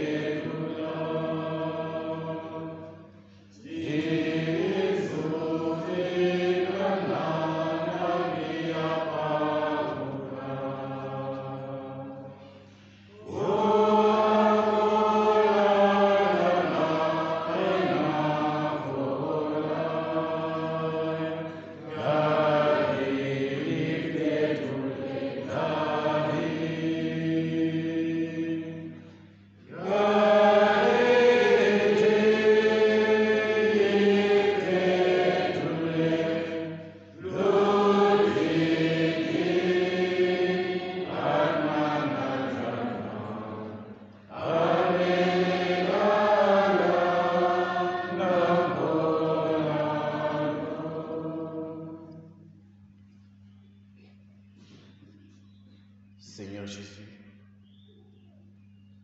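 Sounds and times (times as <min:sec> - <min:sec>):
slow liturgical chant: 0:00.0 - 0:59.0.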